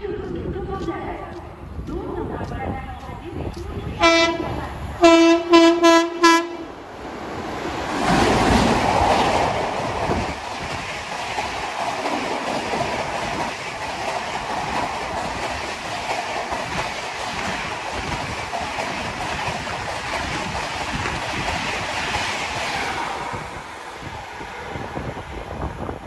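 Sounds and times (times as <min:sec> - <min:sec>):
train coaches rushing and clattering: 0:00.0 - 0:26.0
locomotive horn blasts: 0:04.0 - 0:06.7
locomotive rushing past: 0:04.0 - 0:26.0.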